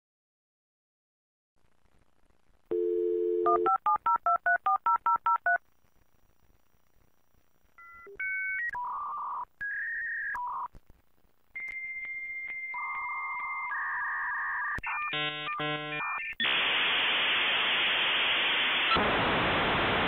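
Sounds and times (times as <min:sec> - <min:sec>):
telephone dial tone: 0:02.7 - 0:04.4.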